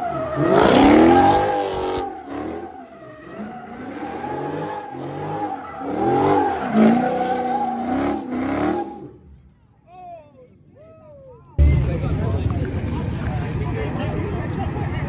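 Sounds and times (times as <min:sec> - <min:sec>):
car engine revving: 0:00.0 - 0:09.3
tires squealing: 0:00.0 - 0:09.4.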